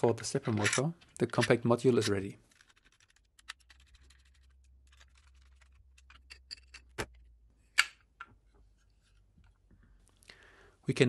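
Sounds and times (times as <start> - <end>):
plastic module and tools clacking: 0.4 - 7.2.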